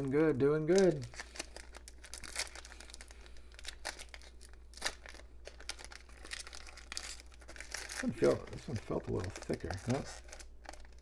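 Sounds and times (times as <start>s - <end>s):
foil wrapper crinkling and tearing: 0.6s - 11.0s.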